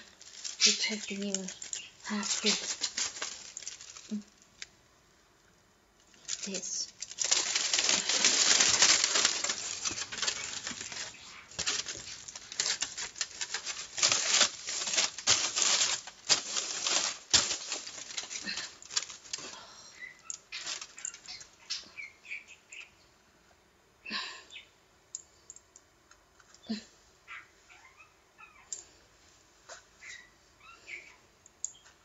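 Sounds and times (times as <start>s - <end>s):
aluminium foil crumpling: 0.0s - 4.7s, 6.0s - 21.9s.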